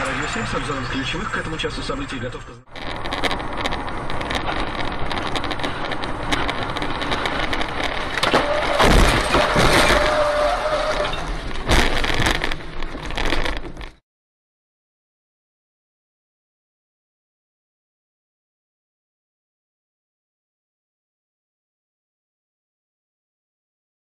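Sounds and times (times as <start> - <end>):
car road noise: 0.0 - 14.0
heavy crash impact: 8.4 - 10.5.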